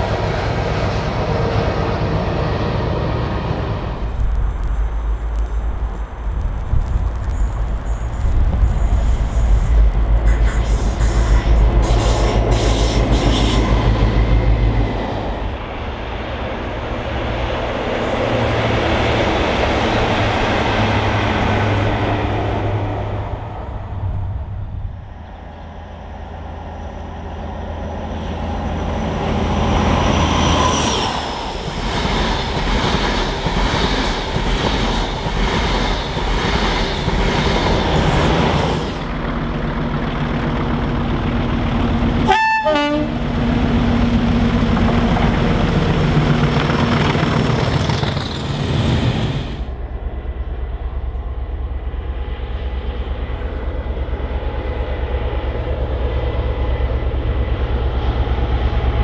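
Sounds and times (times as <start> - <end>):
trains passing at speed: 0.0 - 59.0
train horn toot: 42.2 - 43.2.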